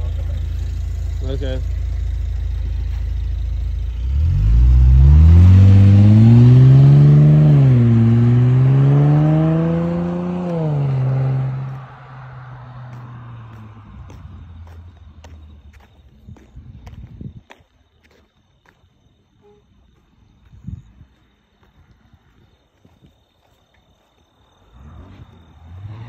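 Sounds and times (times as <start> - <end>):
car engine accelerating: 0.0 - 16.8, 24.6 - 26.0.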